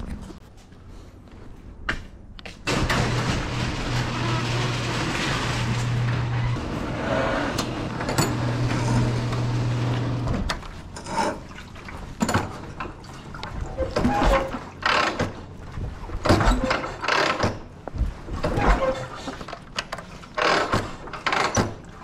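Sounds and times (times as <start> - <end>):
garage door motor humming: 2.7 - 10.9.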